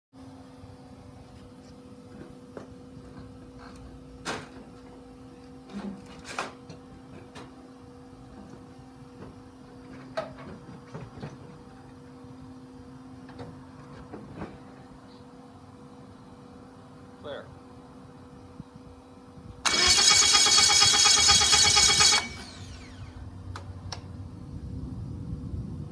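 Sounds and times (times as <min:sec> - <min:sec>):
steady low hum: 0:21.1 - 0:25.9.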